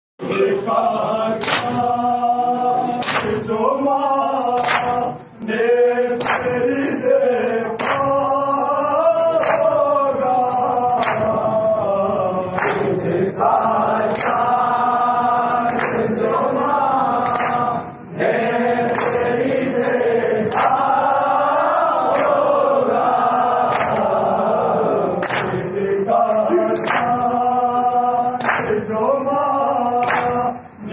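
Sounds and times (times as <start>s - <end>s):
men chanting together: 0.2s - 30.9s
chest-beating slaps in unison: 1.4s - 2.0s, 2.8s - 3.5s, 4.5s - 5.2s, 6.1s - 6.6s, 7.8s - 8.3s, 9.3s - 9.8s, 10.8s - 11.5s, 12.5s - 13.1s, 14.0s - 14.7s, 15.6s - 16.3s, 17.2s - 17.8s, 18.8s - 19.4s, 20.4s - 21.0s, 22.0s - 22.6s, 23.6s - 24.2s, 25.2s - 27.4s, 28.4s - 28.8s, 30.0s - 30.5s.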